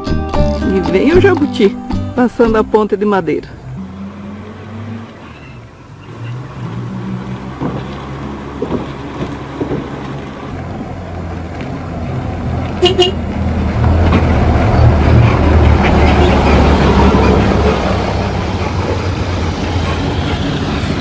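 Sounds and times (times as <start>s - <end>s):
diesel engine running: 0.5s - 21.0s
planks knocking under wheels: 7.5s - 10.9s
vehicle horn toot: 12.8s - 13.2s.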